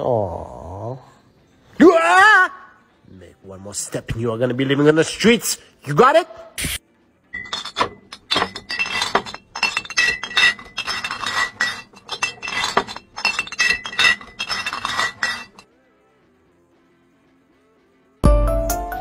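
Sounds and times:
rapid clinking and jingling: 7.4 - 15.6.

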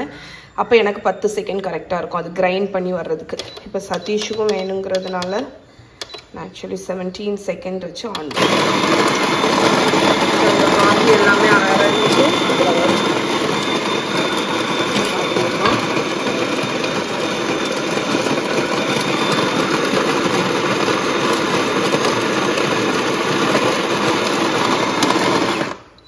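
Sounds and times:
electric coffee grinder grinding: 8.2 - 26.0.

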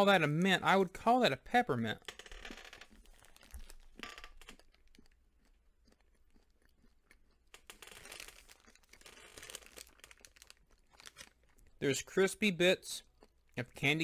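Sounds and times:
crunching candy: 2.0 - 14.0
candy wrapper crinkling: 2.2 - 12.5.

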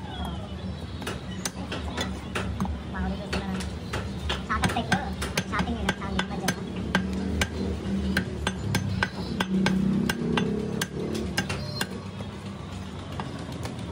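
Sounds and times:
knife chopping meat and bone: 3.3 - 12.0.

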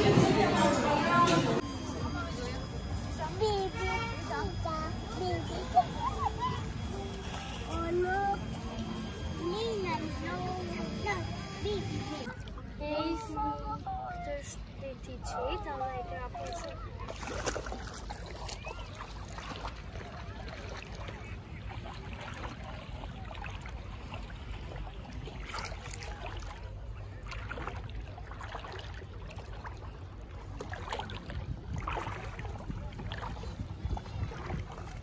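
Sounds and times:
water sloshing around legs: 16.1 - 35.0
wind rumble on microphone: 31.0 - 35.0.

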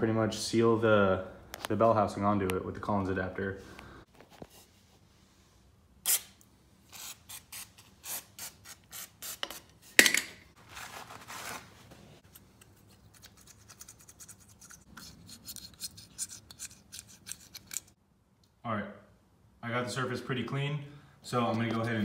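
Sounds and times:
razor blade scraping metal: 13.1 - 18.0.

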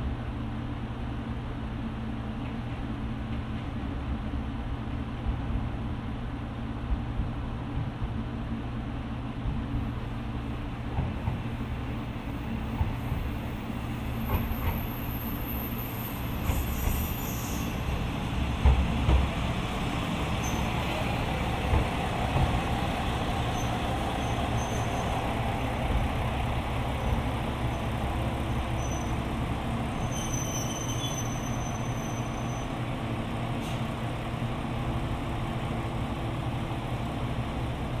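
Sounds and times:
diesel railcar engine hum: 0.0 - 38.0
train wheels on rail: 0.8 - 38.0
high brake squeal: 14.5 - 18.0, 20.4 - 20.9, 23.5 - 25.3, 28.7 - 29.3, 29.9 - 32.8.

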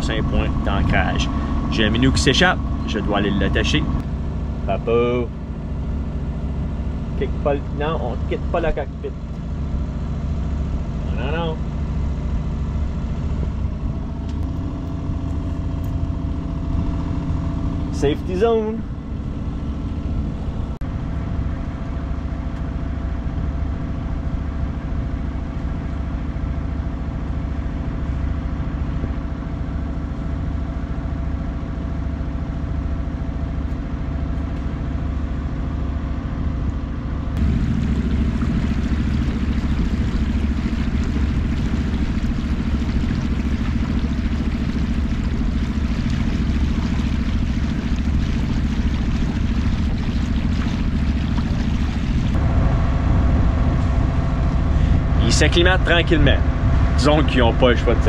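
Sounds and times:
rush of wind and water: 0.0 - 4.0, 37.4 - 58.0
boat engine humming: 0.0 - 58.0.

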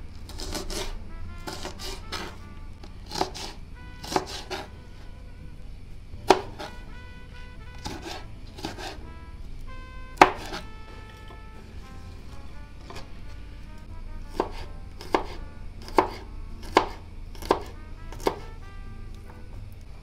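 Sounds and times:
knife chopping on plastic board: 0.3 - 2.4, 3.0 - 4.7, 6.3 - 6.8, 7.8 - 9.0, 10.2 - 10.6, 12.8 - 13.1, 14.3 - 18.5.

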